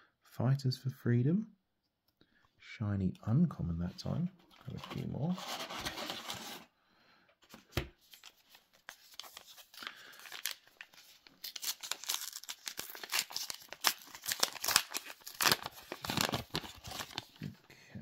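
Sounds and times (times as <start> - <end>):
wrappers crinkling: 8.9 - 17.4.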